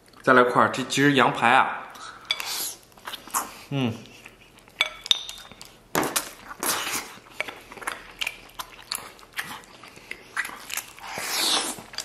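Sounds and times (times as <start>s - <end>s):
chewing with smacks and clicks: 2.0s - 12.0s
sucking meat off bone: 6.6s - 12.0s.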